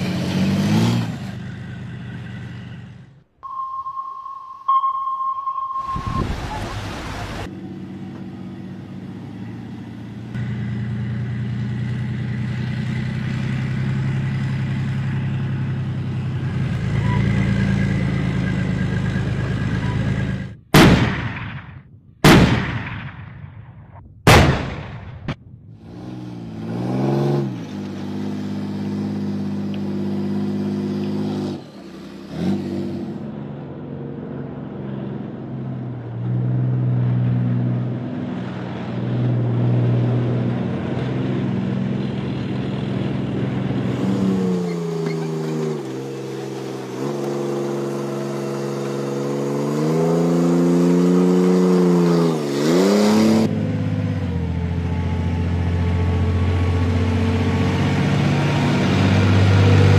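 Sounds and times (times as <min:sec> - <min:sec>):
tank diesel engine revving: 0:00.0 - 0:03.2, 0:06.2 - 0:21.5, 0:25.7 - 0:59.9
loud sharp bangs: 0:20.7 - 0:25.7.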